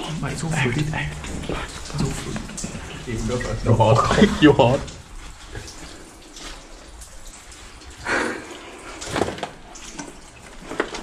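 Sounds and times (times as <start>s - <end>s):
footsteps on wet floor: 0.2s - 7.8s.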